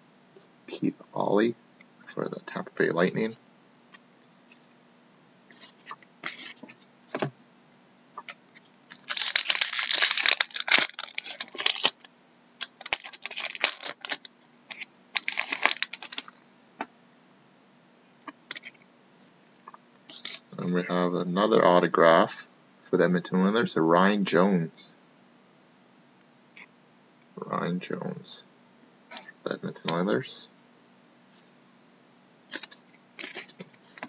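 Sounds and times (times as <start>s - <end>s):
foil wrapper tearing and crinkling: 8.9s - 16.4s.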